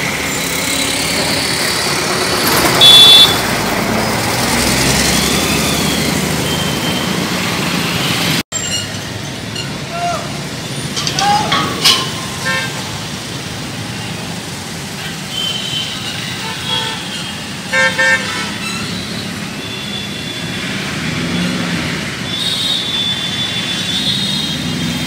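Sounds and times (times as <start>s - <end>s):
street traffic: 0.0s - 25.0s
vehicle horns honking: 2.7s - 3.5s, 12.3s - 13.0s, 15.0s - 20.6s.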